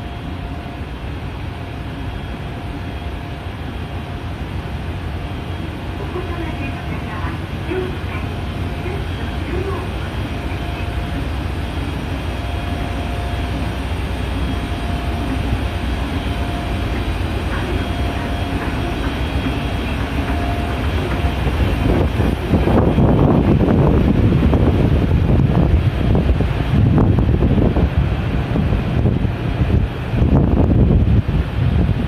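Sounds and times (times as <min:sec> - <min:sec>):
escalator humming and rumbling: 0:00.0 - 0:32.0
loud rushing rumble: 0:13.5 - 0:32.0.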